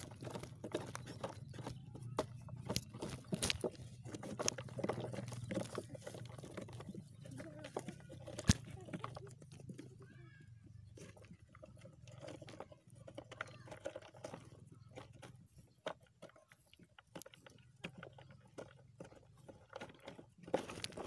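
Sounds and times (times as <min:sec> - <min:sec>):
dry earth crumbling and crackling: 0:00.0 - 0:21.0.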